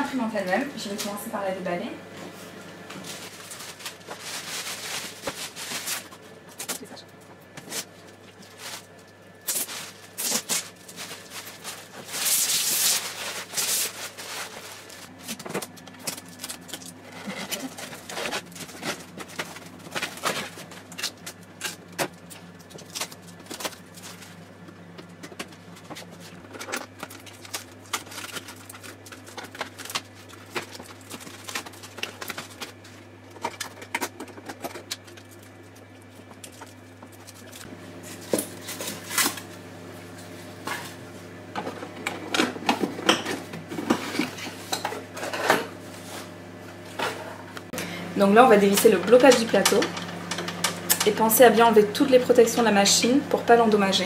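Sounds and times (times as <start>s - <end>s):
plastic wrap rustling: 2.9s - 6.9s, 7.6s - 39.6s.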